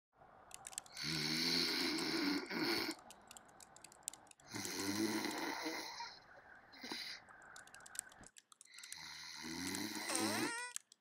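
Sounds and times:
laptop keyboard clicks: 0.5s - 5.4s, 7.3s - 11.0s
man snoring: 1.0s - 3.0s, 4.5s - 6.2s, 8.9s - 10.7s.

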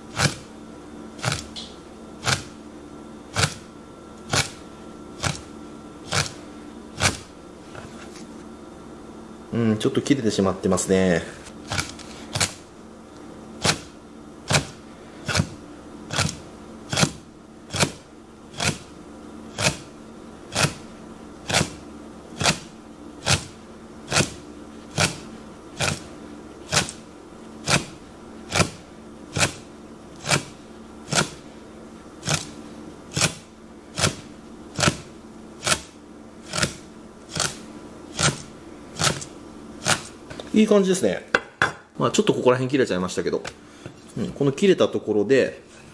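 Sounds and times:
knife cutting fish: 0.1s - 0.4s, 1.2s - 1.6s, 6.1s - 6.4s, 16.1s - 18.0s, 18.6s - 18.9s, 19.5s - 19.9s, 20.5s - 20.8s, 21.5s - 21.8s, 22.4s - 26.1s, 26.7s - 27.0s, 28.5s - 29.6s, 30.2s - 30.5s, 31.1s - 31.4s, 32.2s - 32.5s, 35.6s - 40.1s.

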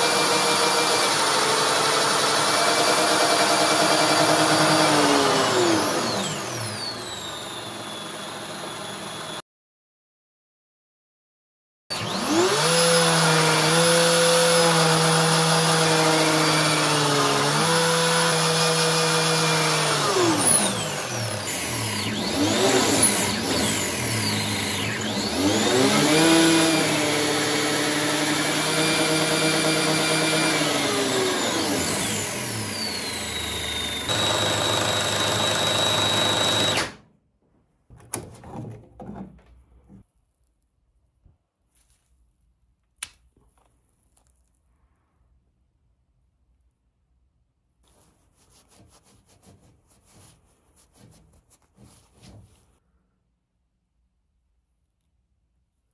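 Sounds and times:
small electric motor whining: 18.7s - 36.9s.

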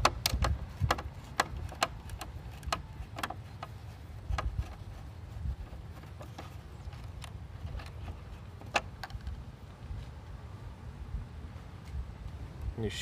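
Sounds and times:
plastic parts clicking and tapping: 0.0s - 4.8s.

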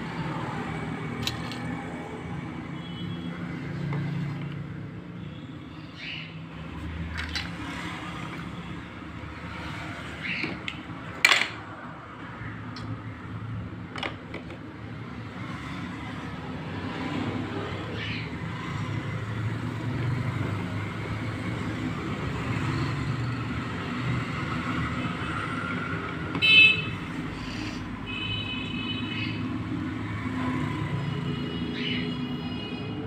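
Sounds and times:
plastic toy pieces clicking: 1.2s - 1.7s.

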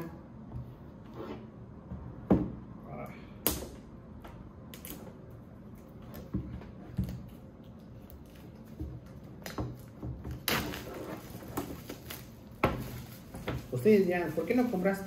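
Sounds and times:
rustling and scraping: 5.9s - 15.0s.

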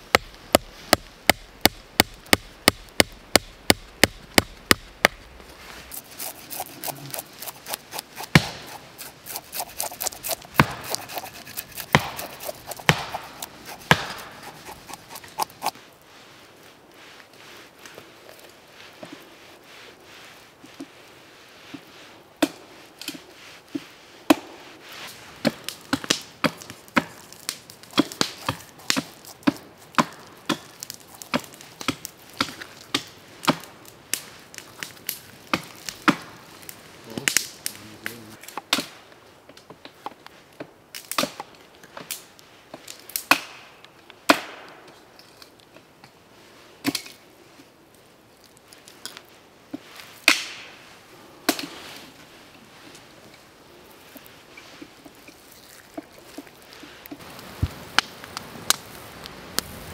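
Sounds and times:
knife scraping fish scales: 5.5s - 15.8s.

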